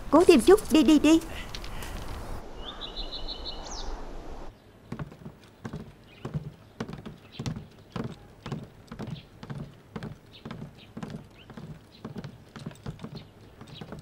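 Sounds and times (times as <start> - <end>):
footsteps on wooden floor: 4.9 - 14.0.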